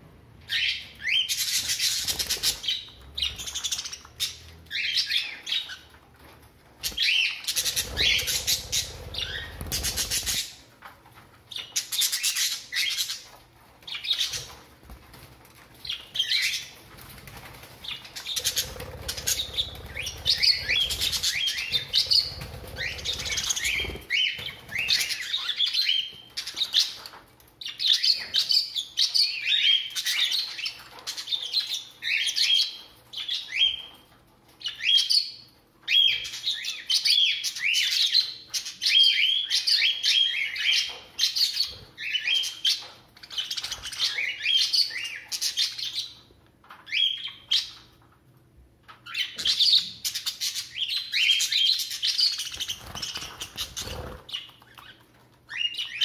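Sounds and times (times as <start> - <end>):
budgerigars chirping: 6.9 - 10.6, 17.8 - 27.0.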